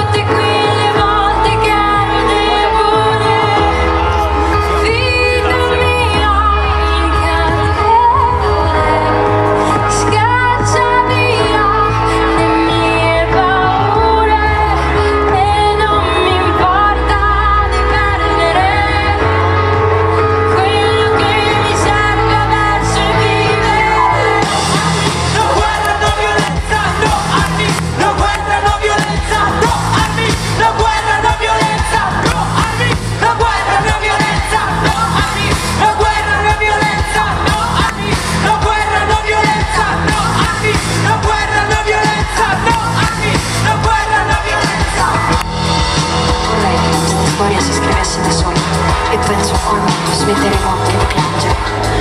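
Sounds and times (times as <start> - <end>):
electric bass: 0.0 - 52.0
electric guitar: 0.0 - 52.0
keyboards: 0.0 - 52.0
woman singing: 0.0 - 52.0
drum beat: 24.4 - 52.0.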